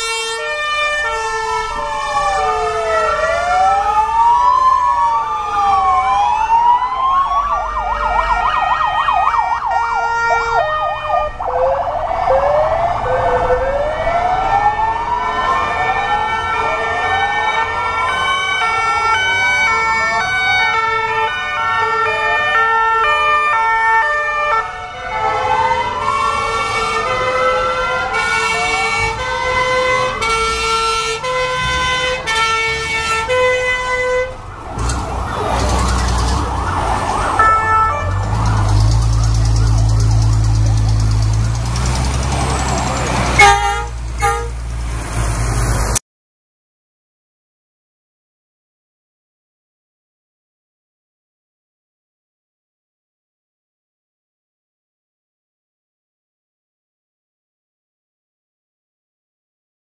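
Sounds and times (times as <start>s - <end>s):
two-tone horns: 0.0s - 1.8s, 24.4s - 35.0s, 37.4s - 44.7s
fast yelp siren: 0.0s - 41.6s
wailing sirens: 0.0s - 46.0s.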